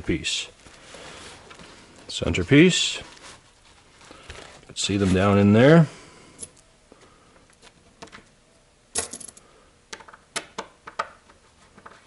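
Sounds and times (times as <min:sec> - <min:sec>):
metal fasteners clicking and clinking: 0:09.0 - 0:11.2.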